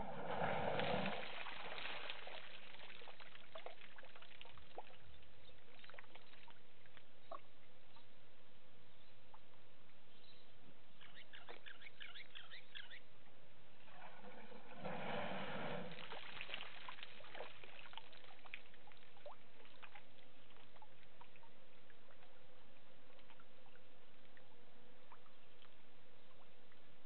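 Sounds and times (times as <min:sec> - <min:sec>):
elephant splashing water: 0:00.0 - 0:03.8, 0:13.9 - 0:17.8.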